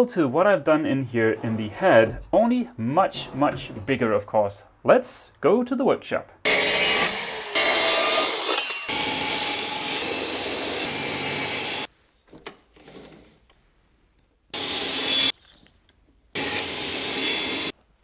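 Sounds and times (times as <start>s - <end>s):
power saws cutting plywood: 6.5s - 11.9s, 14.6s - 15.3s, 16.4s - 17.7s.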